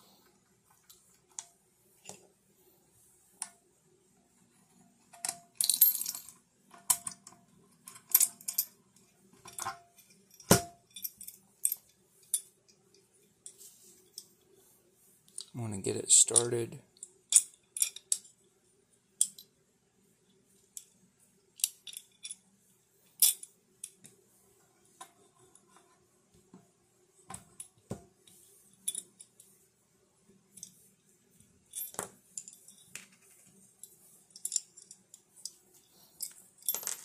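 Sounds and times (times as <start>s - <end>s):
faint steady hum: 0.0s - 37.0s
metal hardware clinking: 33.9s - 35.6s, 36.2s - 37.0s.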